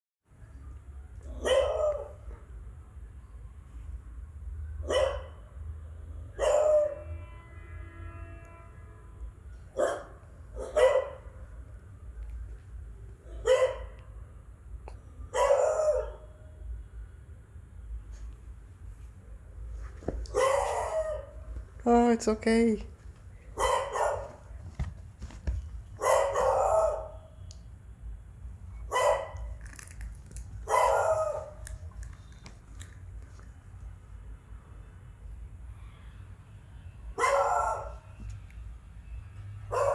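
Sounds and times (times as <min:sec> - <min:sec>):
dog barking: 0:01.3 - 0:02.5, 0:04.8 - 0:05.5, 0:06.4 - 0:07.0, 0:09.7 - 0:11.4, 0:13.3 - 0:14.0, 0:15.3 - 0:16.4, 0:20.3 - 0:21.4, 0:23.6 - 0:24.5, 0:26.0 - 0:27.3, 0:28.9 - 0:29.6, 0:30.6 - 0:31.7, 0:37.2 - 0:38.0, 0:39.7 - 0:39.9.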